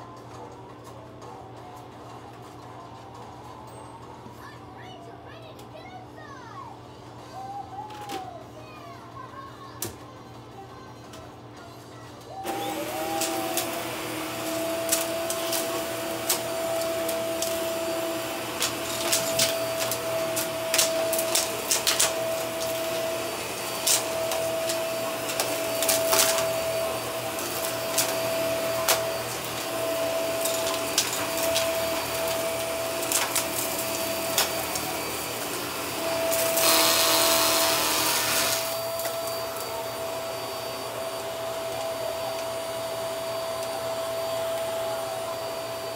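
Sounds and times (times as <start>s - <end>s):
vacuum cleaner whining: 12.3s - 45.9s.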